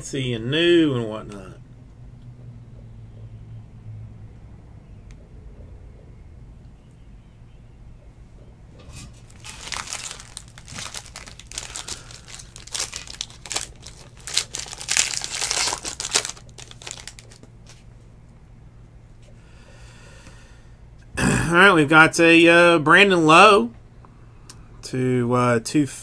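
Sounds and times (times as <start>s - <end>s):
foil wrapper crinkling: 9.1s - 17.8s.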